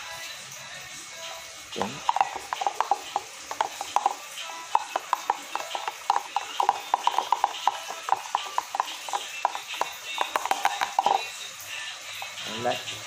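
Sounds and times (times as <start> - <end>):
spoon scraping plastic tub: 1.8 - 11.3.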